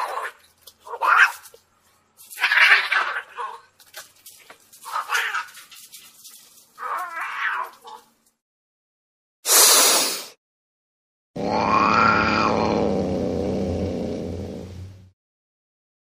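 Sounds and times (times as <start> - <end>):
cat yowling: 6.8 - 8.1, 11.4 - 12.8
burst of hiss-like noise: 9.5 - 10.4.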